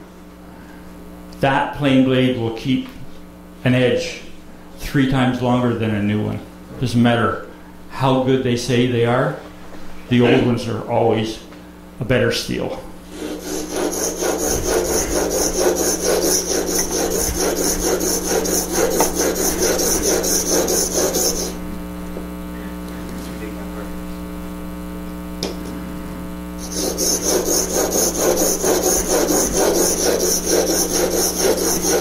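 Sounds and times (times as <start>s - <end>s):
steady hum: 0.0s - 32.0s
chisel scraping on sharpening stone: 13.1s - 21.6s, 26.6s - 32.0s.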